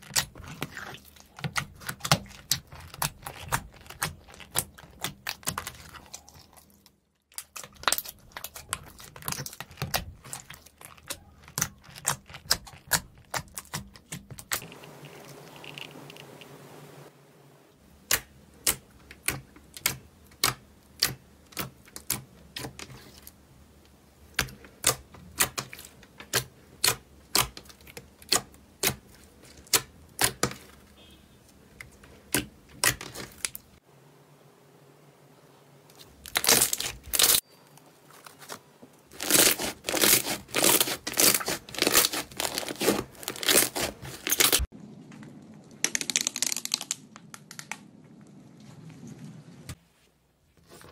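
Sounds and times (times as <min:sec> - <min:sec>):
slime crackling: 0:00.0 - 0:15.9, 0:36.0 - 0:37.4, 0:38.1 - 0:44.7.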